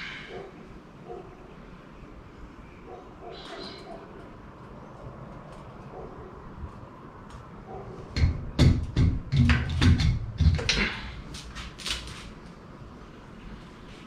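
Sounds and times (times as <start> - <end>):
metal clunks and knocks: 8.1 - 11.0
metal rattling and scraping: 8.9 - 12.2.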